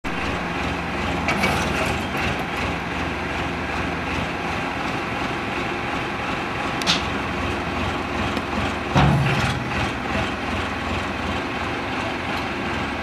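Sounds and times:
tractor diesel engine rumbling: 0.1s - 13.0s
metallic clanks: 8.9s - 10.0s.

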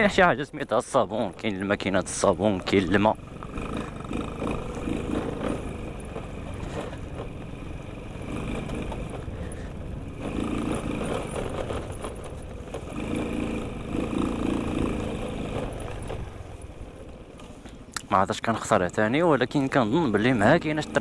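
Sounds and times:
moped engine running: 0.0s - 21.0s.

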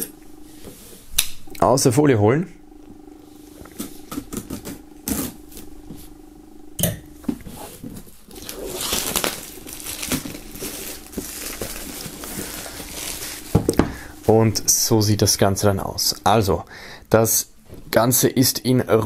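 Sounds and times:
plastic film crinkling: 7.9s - 13.8s
knife slitting plastic wrap: 8.3s - 13.5s.

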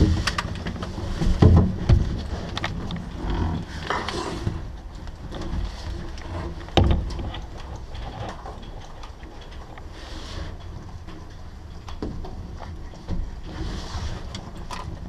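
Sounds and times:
rattling gear clicks and knocks: 0.0s - 4.2s, 4.9s - 9.9s.

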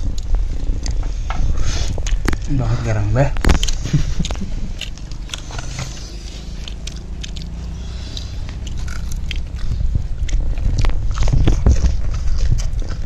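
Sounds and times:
low rumble: 0.0s - 13.0s
chicken skin crackling when chewed: 3.4s - 13.0s.

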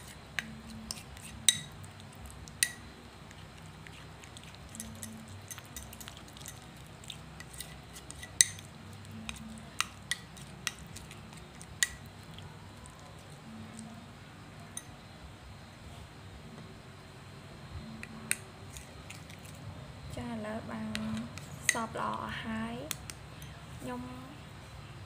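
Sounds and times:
spoon stirring thick paste: 0.0s - 14.0s, 18.0s - 19.6s, 20.8s - 22.3s
spoon clinking against bowl: 0.4s - 1.8s, 3.9s - 6.7s, 7.4s - 12.0s, 14.7s - 14.9s.

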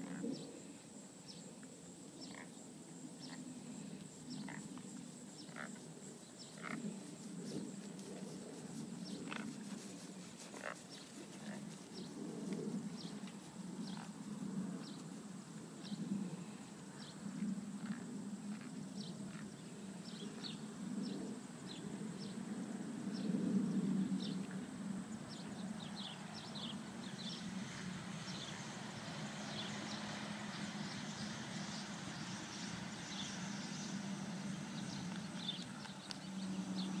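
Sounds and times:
small birds chirping: 3.2s - 14.2s, 29.5s - 37.0s
horse hoofbeats on grass: 6.4s - 14.1s.

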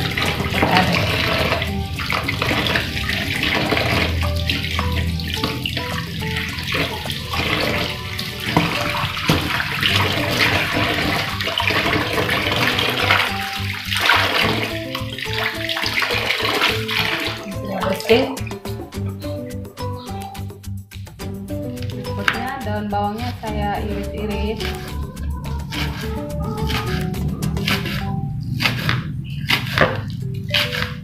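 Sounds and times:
tap water splashing into basin: 0.0s - 18.6s, 21.8s - 22.5s.

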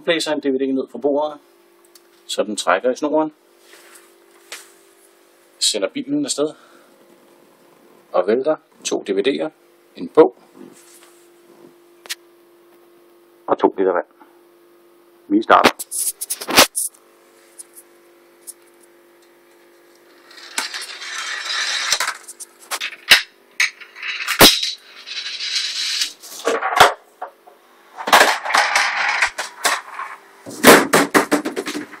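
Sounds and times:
faint steady hum: 0.0s - 32.0s
ball rolling along rails: 19.9s - 30.6s
objects toppling: 20.0s - 27.0s, 28.0s - 32.0s.

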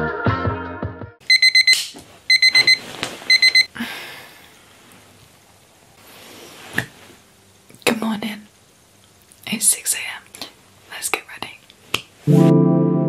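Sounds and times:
electronic alarm beeping: 1.3s - 3.7s.

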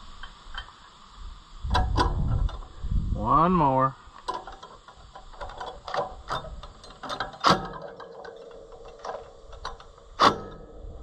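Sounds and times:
metallic clanks and knocks: 4.2s - 11.0s.

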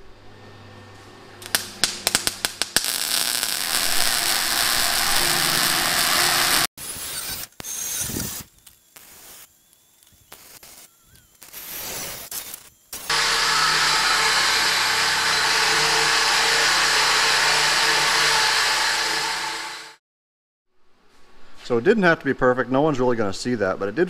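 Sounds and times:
welder arc crackling: 1.4s - 20.0s.

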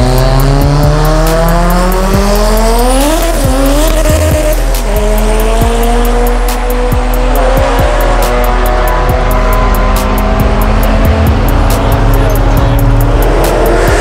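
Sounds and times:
car engines accelerating hard: 0.0s - 14.0s.

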